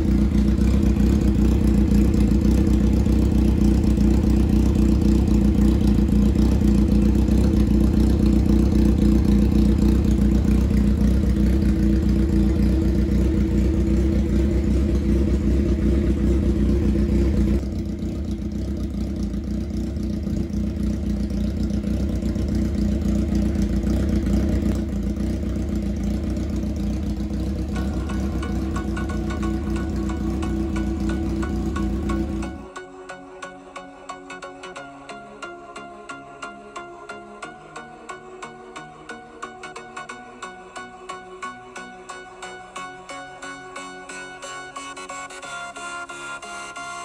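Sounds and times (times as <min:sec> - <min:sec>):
motorcycle engine idling: 0:00.0 - 0:32.8.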